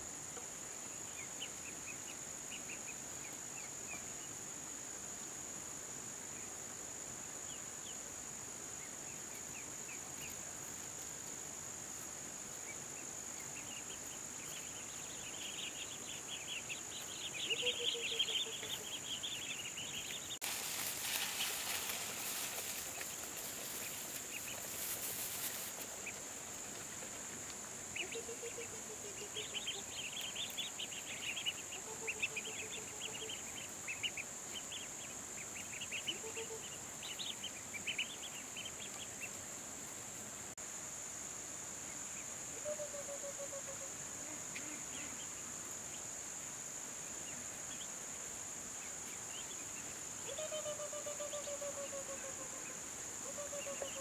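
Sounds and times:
insects droning: 0.0s - 54.0s
rushing hiss: 20.4s - 26.6s.

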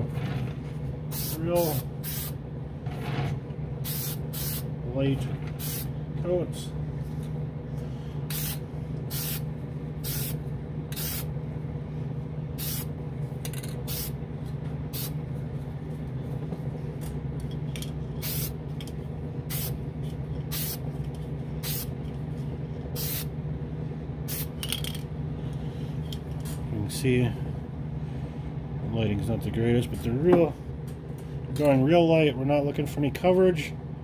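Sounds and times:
exhaust fan hum: 0.0s - 34.0s
aerosol spray can hissing: 2.0s - 2.4s, 3.9s - 4.6s, 5.6s - 5.9s, 8.3s - 9.4s, 10.0s - 11.3s, 12.6s - 12.9s, 20.5s - 20.8s, 23.0s - 23.3s.

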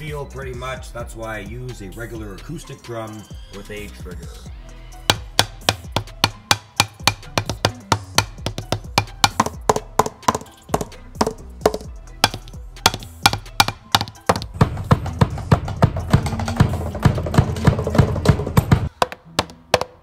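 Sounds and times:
drumstick tapping drum pads: 5.1s - 20.0s.

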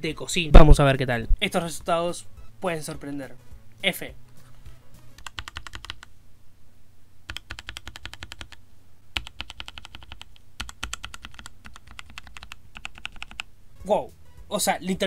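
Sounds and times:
mechanical keyboard clicks: 5.2s - 6.1s, 7.3s - 8.6s, 9.2s - 13.5s.

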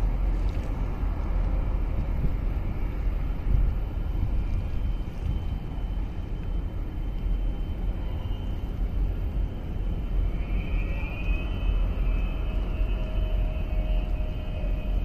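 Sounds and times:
boat engine rumble: 0.0s - 15.0s
wind buffeting microphone: 0.0s - 15.0s
thin whistling tones: 3.9s - 15.0s.

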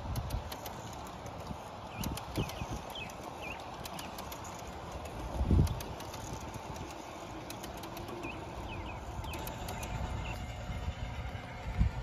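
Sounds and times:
low train rumble: 0.0s - 12.0s
model train wheels clicking: 0.0s - 12.0s
bird chirping: 1.9s - 4.6s, 7.4s - 10.6s.

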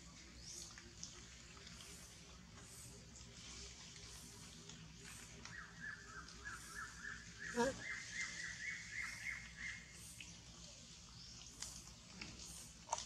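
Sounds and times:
bird chirping: 5.4s - 12.7s.

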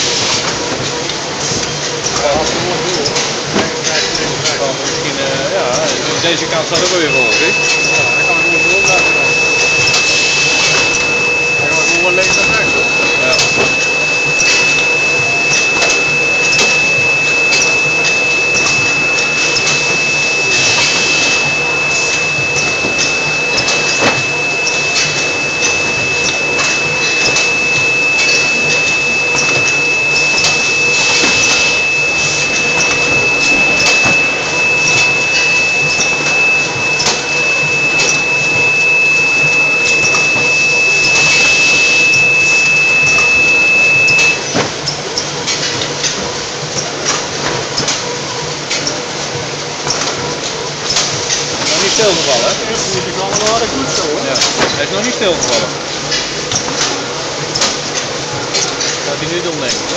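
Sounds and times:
conveyor machinery clatter: 0.0s - 59.9s
high-pitched whine: 2.1s - 44.6s.

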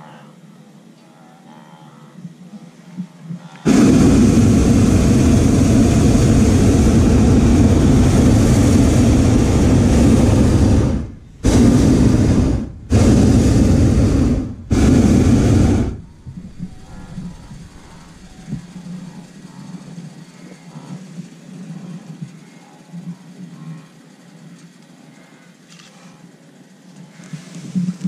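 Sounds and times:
propane burner blasts: 3.6s - 18.8s.

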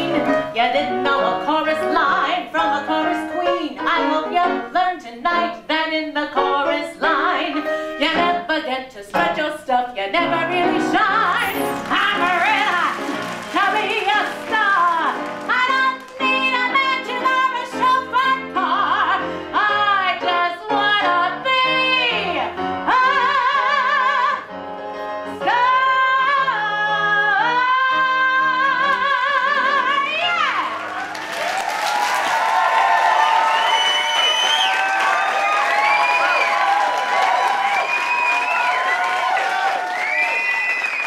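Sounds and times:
woman singing with vibrato: 0.0s - 24.5s
upright piano accompaniment: 0.0s - 33.4s.

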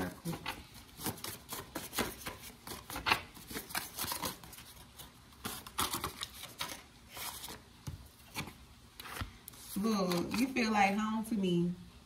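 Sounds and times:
paper cards flicking and tapping: 0.3s - 4.8s.

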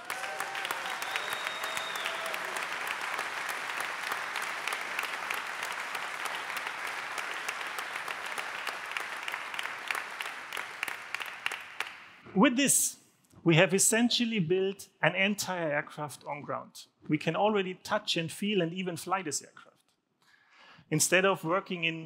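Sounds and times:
audience clapping: 0.0s - 12.2s
high whistle: 0.6s - 2.6s.

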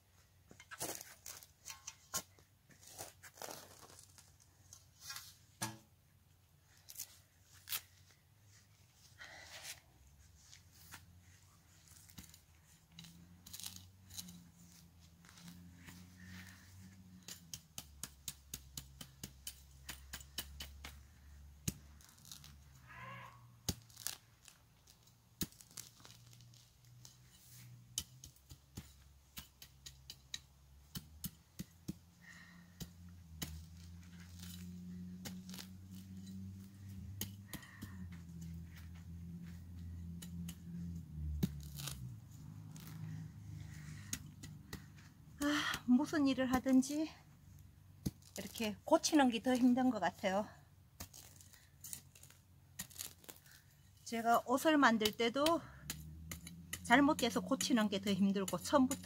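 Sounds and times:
turf ripping and snapping: 2.8s - 4.4s, 21.6s - 28.8s, 33.3s - 37.9s, 41.2s - 43.2s, 51.0s - 53.8s.

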